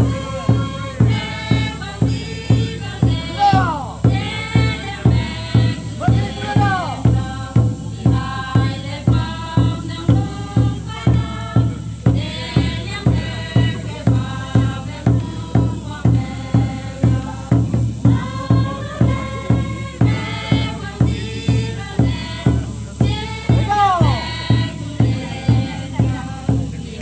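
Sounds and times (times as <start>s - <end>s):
group singing a folk song: 0.0s - 27.0s
steady drum beat: 0.0s - 27.0s.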